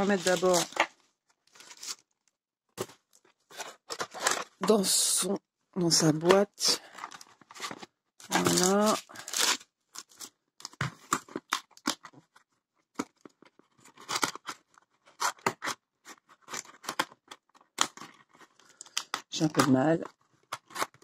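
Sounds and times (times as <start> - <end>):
cardboard and plastic crinkling: 0.0 - 5.0, 6.2 - 12.3.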